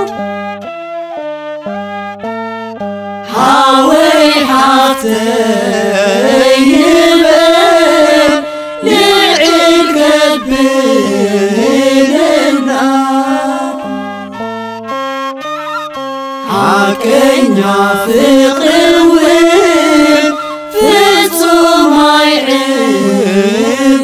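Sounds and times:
person singing a hymn: 0:00.0 - 0:00.2, 0:03.3 - 0:14.4, 0:16.4 - 0:24.0
instrumental accompaniment: 0:00.0 - 0:24.0.

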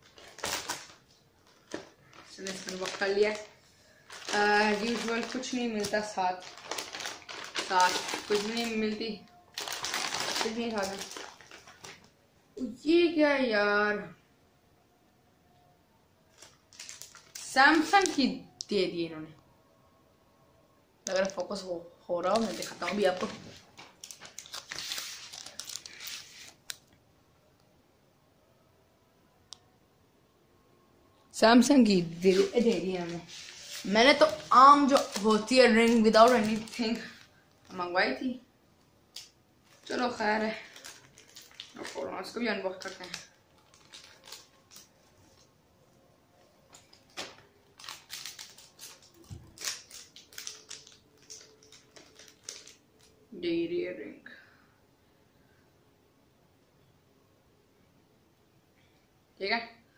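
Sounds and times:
blister packet crinkling: 0:00.0 - 0:12.2, 0:16.3 - 0:18.3, 0:22.2 - 0:26.9, 0:31.9 - 0:38.4, 0:39.1 - 0:45.5, 0:46.6 - 0:53.2.

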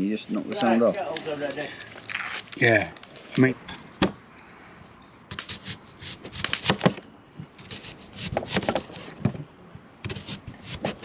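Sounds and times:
knife slicing onion: 0:05.3 - 0:07.0, 0:07.6 - 0:09.2, 0:10.0 - 0:11.0.

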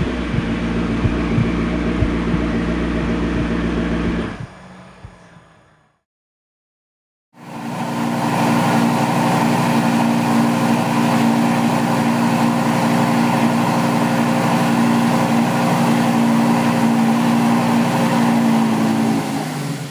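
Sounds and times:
engine droning hum: 0:00.0 - 0:06.0.

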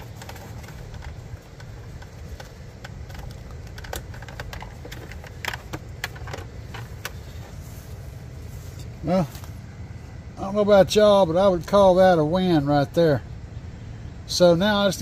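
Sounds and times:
plastic clicks and taps: 0:00.0 - 0:07.2
steady low rumble: 0:00.0 - 0:15.0.

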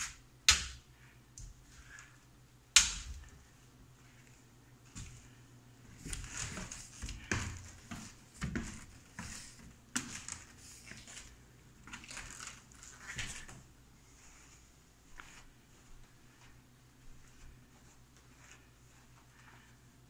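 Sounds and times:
scuffing and rustling: 0:03.2 - 0:19.9
footsteps climbing stairs: 0:05.9 - 0:11.3.

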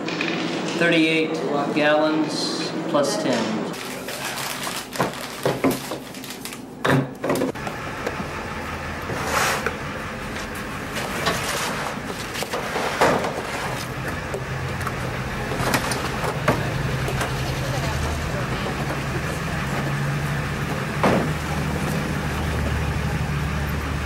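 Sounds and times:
plastic bins thudding and scraping: 0:09.0 - 0:23.0.

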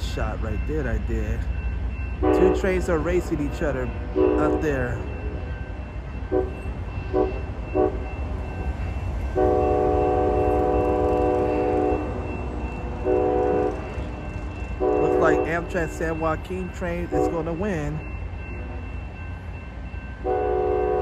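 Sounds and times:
locomotive air horn blasts: 0:02.2 - 0:02.6, 0:04.1 - 0:04.6, 0:06.3 - 0:08.0, 0:09.4 - 0:12.2, 0:13.0 - 0:14.0, 0:14.8 - 0:15.6, 0:20.2 - 0:21.0.

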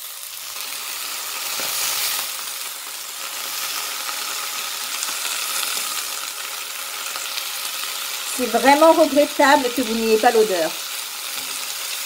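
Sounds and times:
greens sizzling in butter: 0:00.0 - 0:12.0
spatula turning food in pan: 0:00.0 - 0:12.0.

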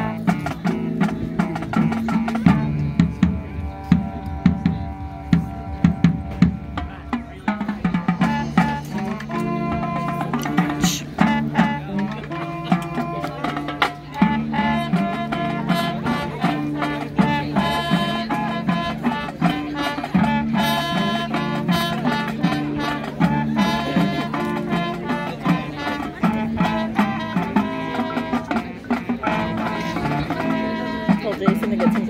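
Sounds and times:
brass chords: 0:00.0 - 0:32.0
percussion strokes: 0:00.0 - 0:32.0.

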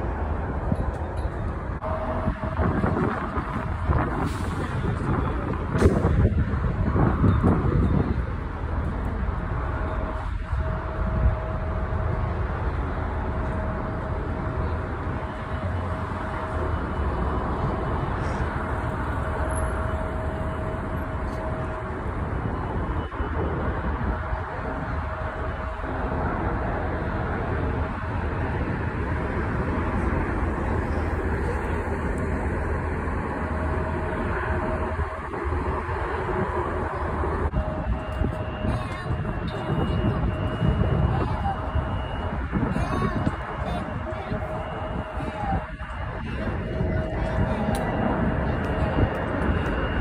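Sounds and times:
jet engine rumble and whine: 0:00.0 - 0:50.0
road traffic roar: 0:00.0 - 0:50.0.

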